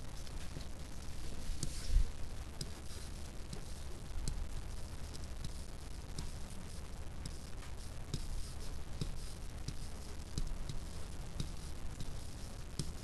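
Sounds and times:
low steady hum: 0:00.0 - 0:13.0
stylus tapping and scratching: 0:00.0 - 0:13.0.

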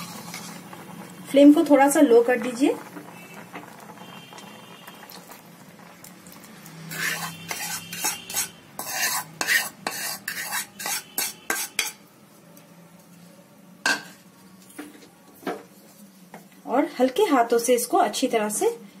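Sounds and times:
spoon scraping and knocking a bowl: 0:06.9 - 0:12.0.

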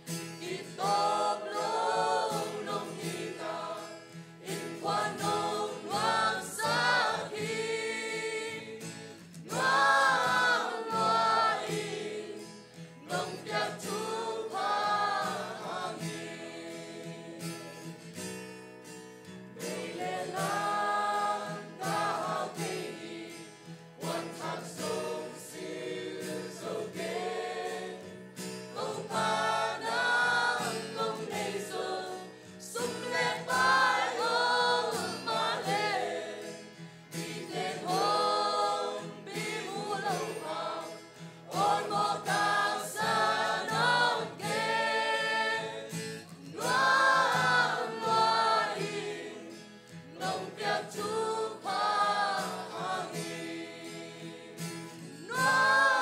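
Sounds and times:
mixed choir singing a hymn: 0:00.0 - 0:18.1, 0:19.5 - 0:56.0.

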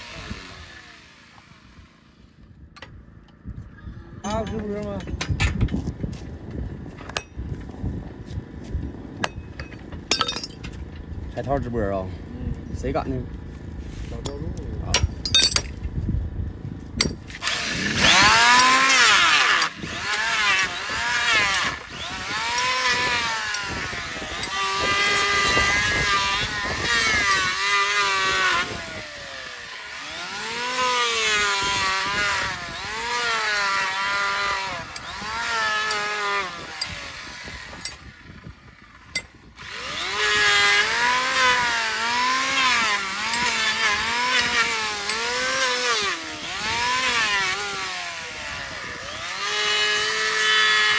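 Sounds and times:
electric hoof trimmer cutting: 0:00.0 - 0:02.4, 0:17.2 - 0:50.9.

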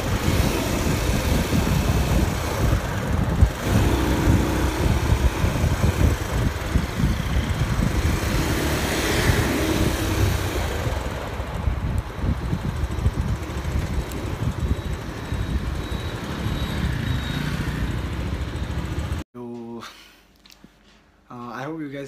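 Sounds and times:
low wind buffeting: 0:00.0 - 0:19.2
vehicle road rumble: 0:00.0 - 0:19.2.

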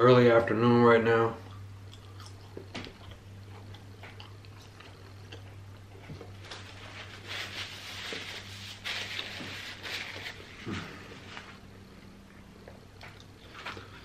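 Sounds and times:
steady low hum: 0:00.0 - 0:14.0
mouth chewing: 0:01.4 - 0:06.4
paper napkin rustling: 0:06.4 - 0:11.6.

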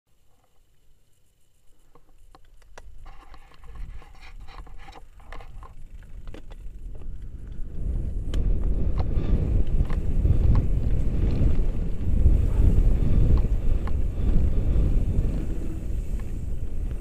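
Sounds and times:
bike clicks and rattles: 0:01.7 - 0:17.0
wind rumble on microphone: 0:02.7 - 0:17.0.

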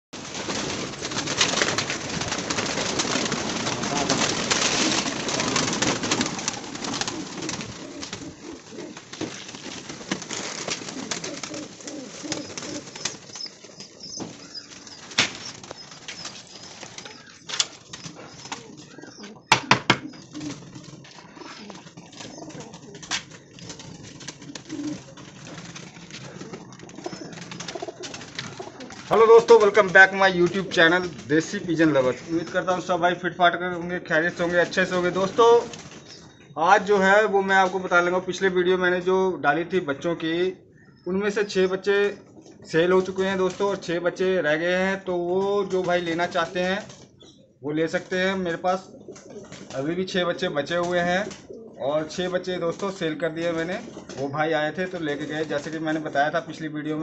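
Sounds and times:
pigeon wings flapping: 0:00.2 - 0:32.6, 0:34.4 - 0:36.2, 0:49.1 - 0:50.0, 0:52.2 - 0:56.2
pigeons cooing: 0:00.3 - 0:36.6, 0:48.4 - 0:56.7.

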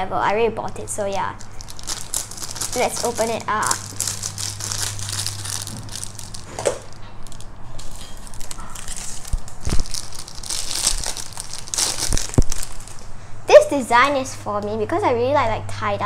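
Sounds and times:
plastic packaging crinkling: 0:01.0 - 0:13.2.

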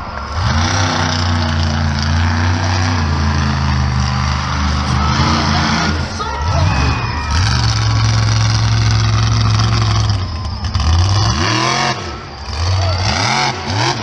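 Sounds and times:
monster truck engine revving: 0:00.0 - 0:14.0.

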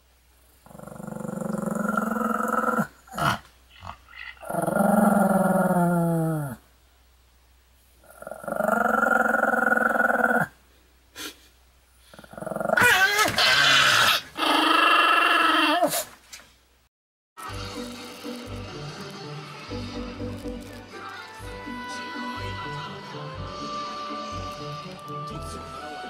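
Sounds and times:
dog growling: 0:00.6 - 0:06.6, 0:08.0 - 0:10.6, 0:12.1 - 0:16.1.

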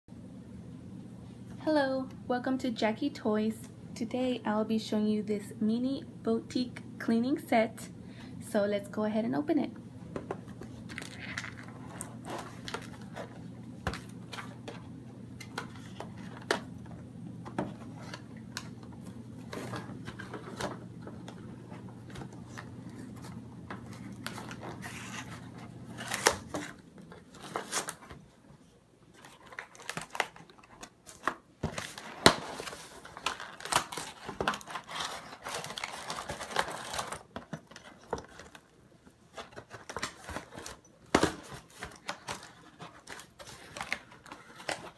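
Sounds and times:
low steady hum: 0:00.1 - 0:44.9
packaging crinkling and tearing: 0:10.7 - 0:16.9, 0:17.8 - 0:28.2, 0:29.1 - 0:44.9.

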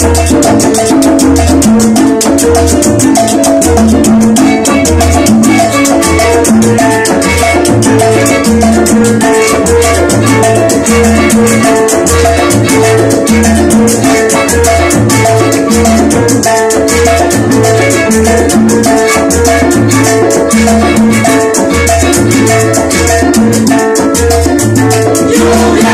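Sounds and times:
salsa band playing: 0:00.0 - 0:25.9.

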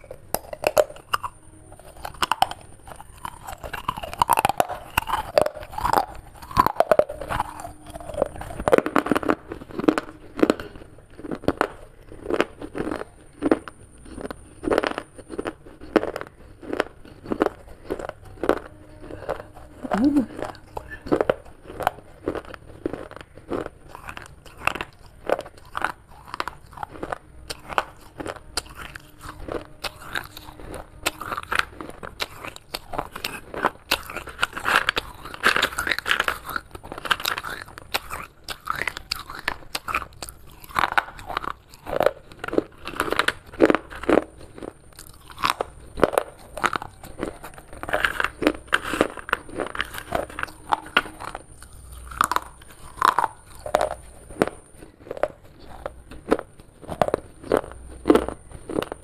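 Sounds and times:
person chewing clay shards: 0:00.0 - 0:59.0.

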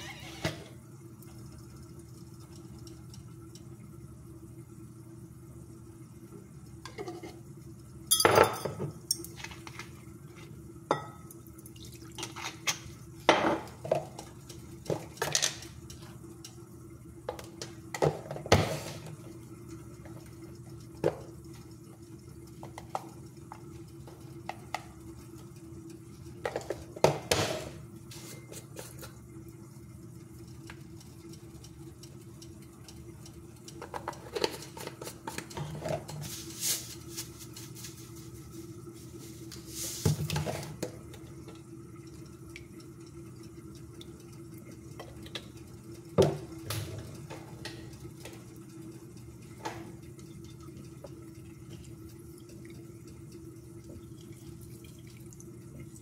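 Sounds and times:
spoon clinking on glass jug: 0:08.1 - 0:09.4.

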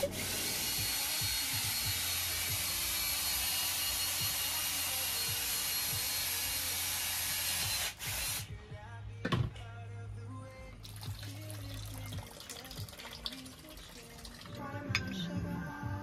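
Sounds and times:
drill grinding into coconut: 0:00.0 - 0:08.5.

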